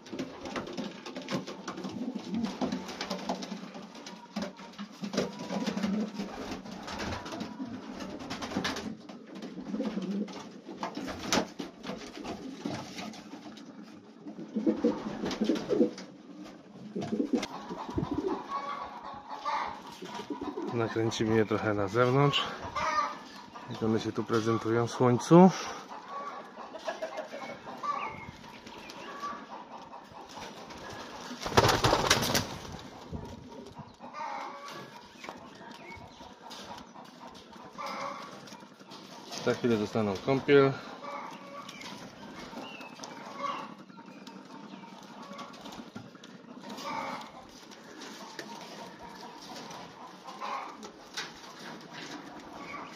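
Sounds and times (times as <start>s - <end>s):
pigeon wings flapping: 0.0s - 13.6s, 14.4s - 16.1s, 30.4s - 33.7s
pigeons cooing: 0.0s - 52.9s.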